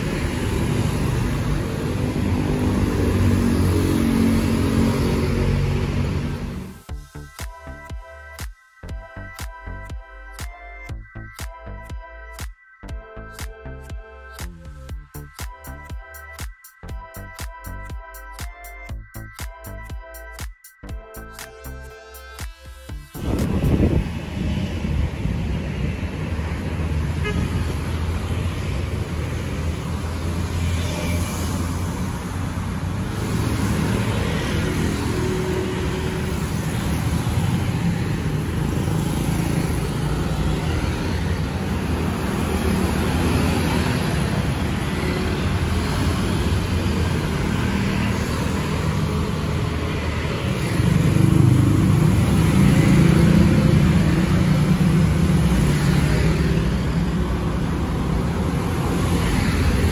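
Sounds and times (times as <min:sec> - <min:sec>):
motor scooters passing: 0:00.0 - 0:06.8, 0:23.1 - 0:59.9
cars driving past: 0:00.0 - 0:06.9, 0:23.2 - 0:59.9.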